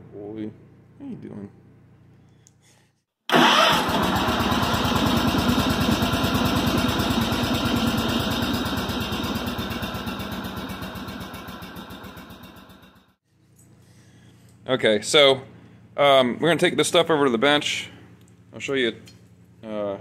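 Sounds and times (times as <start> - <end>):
small engine running: 3.3 - 13.2.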